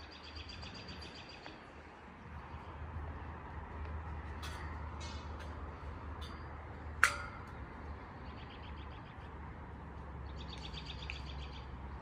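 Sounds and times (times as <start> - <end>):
songbirds trilling: 0.0 - 1.8, 7.6 - 12.0.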